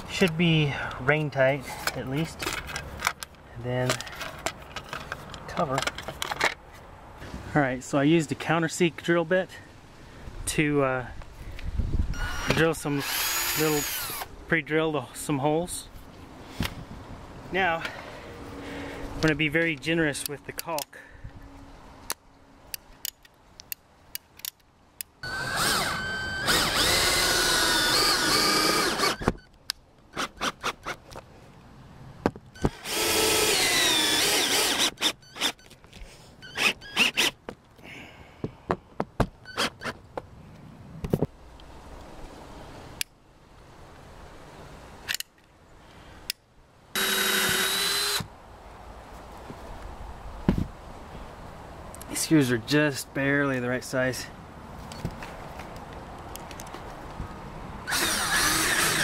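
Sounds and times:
cordless drill driving screws: 0:12.1 - 0:14.3, 0:25.2 - 0:29.4, 0:32.6 - 0:35.7, 0:36.4 - 0:37.4, 0:47.0 - 0:48.3, 0:57.9 - 0:59.0.

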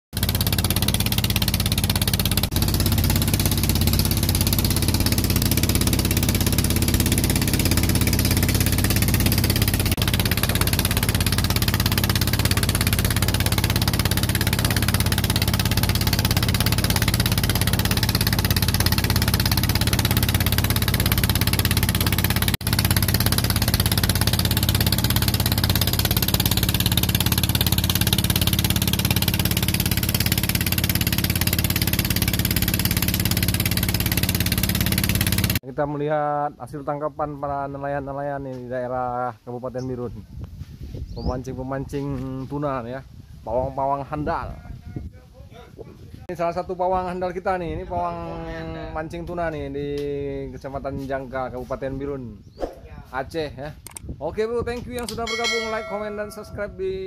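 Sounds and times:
boat engine running: 0:00.1 - 0:35.6, 0:55.0 - 0:57.0
water rushing along hull: 0:00.2 - 0:35.6
wind noise: 0:40.1 - 0:46.2, 0:52.2 - 0:55.2.

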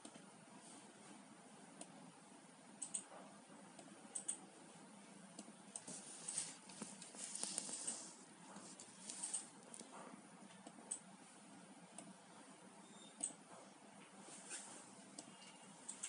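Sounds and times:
computer mouse clicks: 0:02.8 - 0:03.1, 0:03.8 - 0:04.4, 0:05.4 - 0:06.0, 0:13.2 - 0:13.4.

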